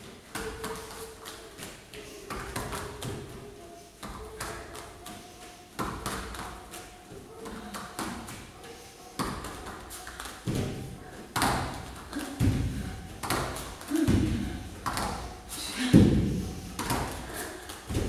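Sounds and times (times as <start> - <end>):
bare feet thumping on foam: 15.9 - 17.2.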